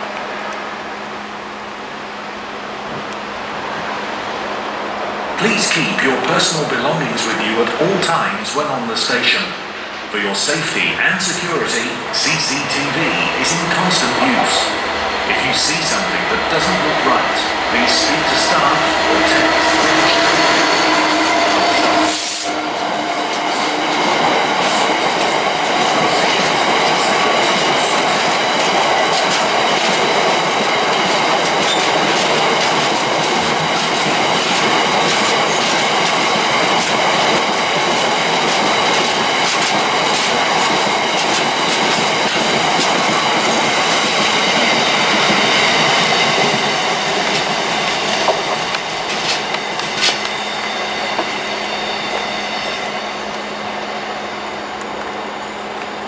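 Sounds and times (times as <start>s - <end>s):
diesel locomotive passing: 0.0s - 56.0s
high wheel squeal: 12.2s - 24.9s, 31.6s - 32.1s, 47.8s - 54.8s.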